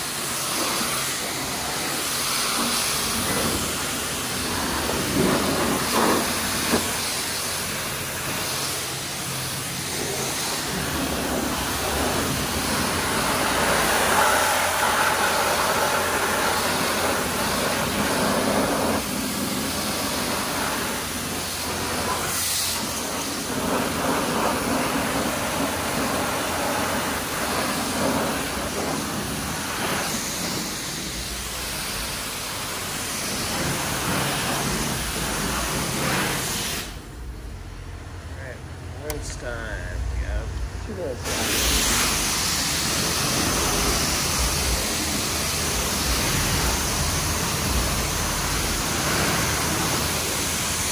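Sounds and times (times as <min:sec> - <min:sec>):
pressure washer spray hitting car: 0:00.0 - 0:37.1, 0:41.2 - 0:50.9.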